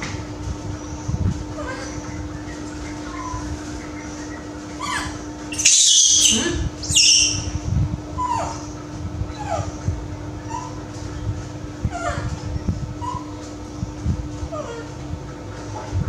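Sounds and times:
steady low hum: 0:00.0 - 0:16.0
baby monkey whimpering cries: 0:01.5 - 0:02.2, 0:04.8 - 0:07.6, 0:08.2 - 0:09.8, 0:10.4 - 0:10.8, 0:11.9 - 0:12.3, 0:13.0 - 0:13.4, 0:14.5 - 0:15.0
monkey shrill screeches: 0:04.8 - 0:07.6.

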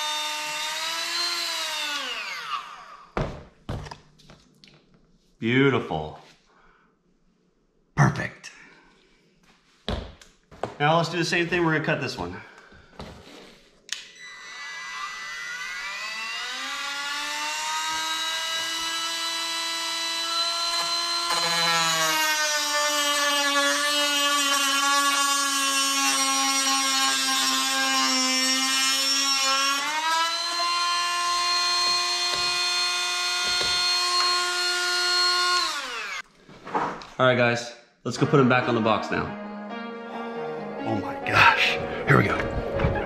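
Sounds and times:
rotary tool cut-off wheel whining: 0:00.0 - 0:03.1, 0:13.9 - 0:36.3.

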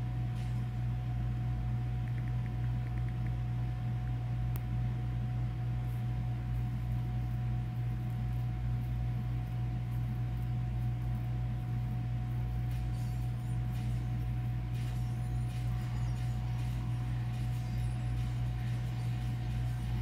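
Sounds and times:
steady low hum: 0:00.0 - 0:20.0
thin constant high tone: 0:12.3 - 0:20.0.

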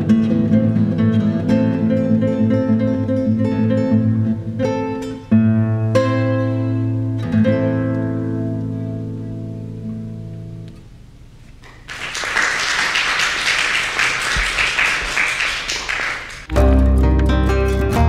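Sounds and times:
classical guitar chord ringing: 0:00.0 - 0:10.9, 0:16.5 - 0:18.0
audience applause: 0:11.7 - 0:16.5.

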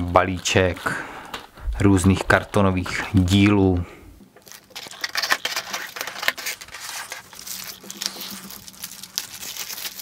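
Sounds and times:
plastic packaging crinkling: 0:00.0 - 0:01.0, 0:04.3 - 0:10.0.

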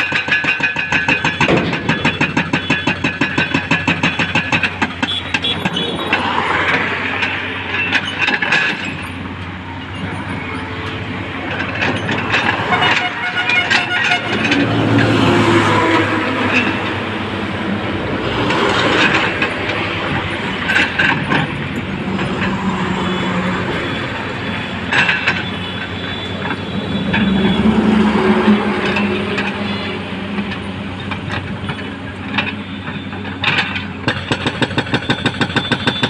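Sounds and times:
hydraulic breaker hammering concrete: 0:00.0 - 0:06.3, 0:33.4 - 0:36.0
excavator diesel engine running: 0:00.0 - 0:36.0
highway traffic passing: 0:00.0 - 0:36.0
bus passing: 0:04.5 - 0:34.1.

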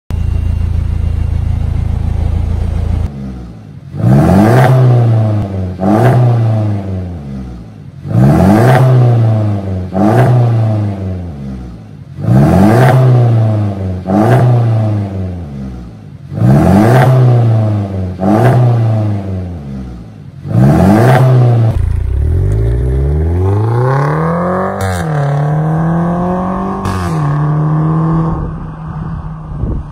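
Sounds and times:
car engine revving and accelerating: 0:01.9 - 0:29.6.

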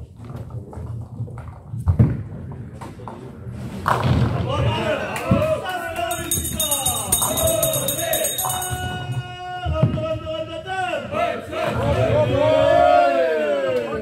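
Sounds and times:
rhythmic high jingle: 0:06.1 - 0:09.2.

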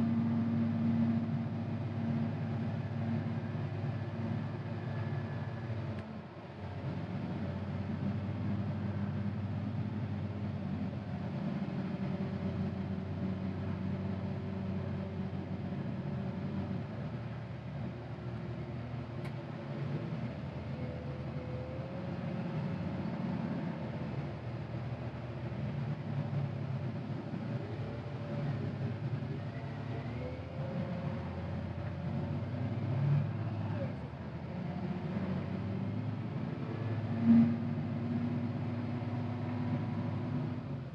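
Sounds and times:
diesel engine running under load: 0:00.0 - 0:40.9
faint click: 0:19.2 - 0:19.4.

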